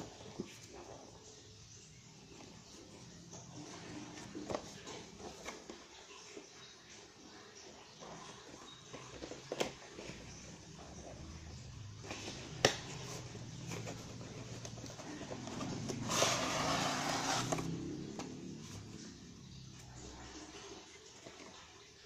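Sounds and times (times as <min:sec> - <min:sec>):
cardboard box lid scraping: 0:12.1 - 0:18.4.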